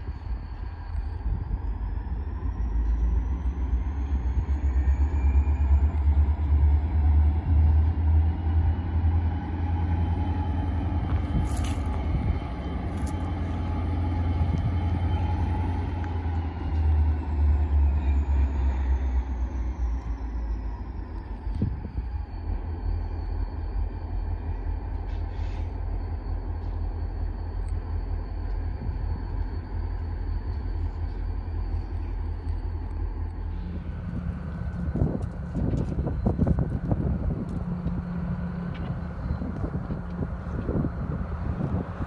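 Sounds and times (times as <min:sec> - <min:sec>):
diesel locomotive engine rumble: 0:00.0 - 0:42.0
high thin whine: 0:33.3 - 0:42.0.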